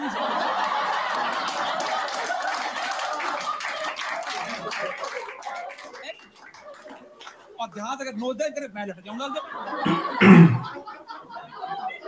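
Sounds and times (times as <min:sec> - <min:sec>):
audience laughing: 0:00.0 - 0:07.4, 0:09.3 - 0:12.0
audience clapping: 0:00.0 - 0:07.6.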